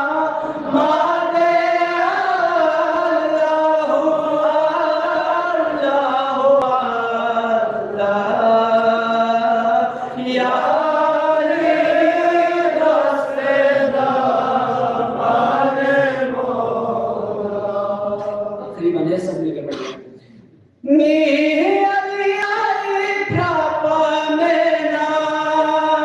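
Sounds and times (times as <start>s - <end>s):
man chanting into a microphone: 20.8s - 26.0s.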